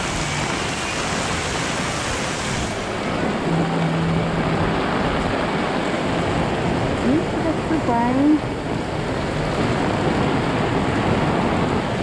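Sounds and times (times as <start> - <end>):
heavy rain on pavement: 0.0 - 12.0
low hum: 2.5 - 8.9.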